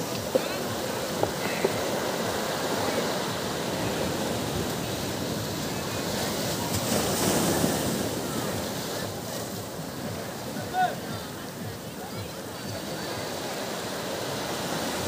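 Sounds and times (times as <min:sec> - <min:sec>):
small waves washing up shore: 0:00.0 - 0:15.0.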